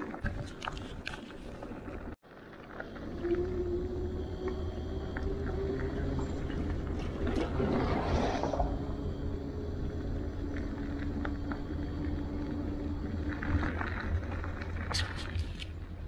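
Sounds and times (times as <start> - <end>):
stones ticking: 0.0 - 3.6
tyres rumbling on gravel: 0.0 - 16.0
electric motor hum: 2.8 - 14.9.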